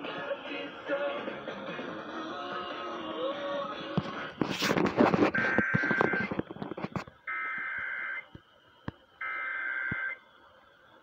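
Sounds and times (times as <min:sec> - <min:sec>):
clicks and handling noise: 0:04.0 - 0:09.0.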